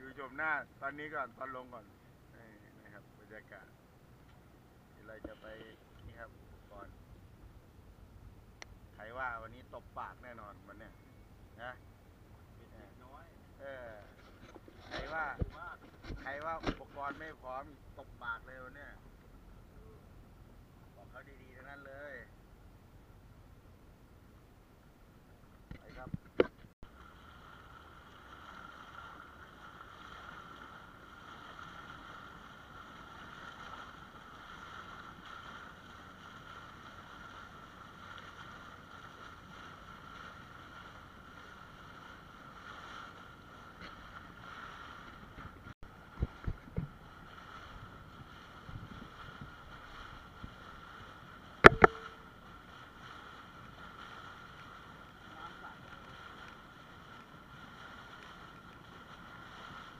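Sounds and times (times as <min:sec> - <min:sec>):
small boat motor droning: 0:26.8 - 0:59.9
short thumps: 0:51.6 - 0:52.2.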